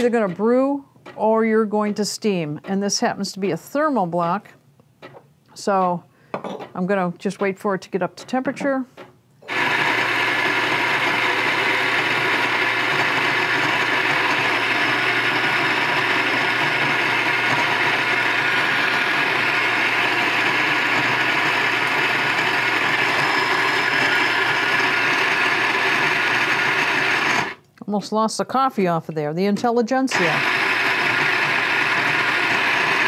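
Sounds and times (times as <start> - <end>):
coffee grinder grinding beans: 9.4 - 27.6, 30.1 - 33.0.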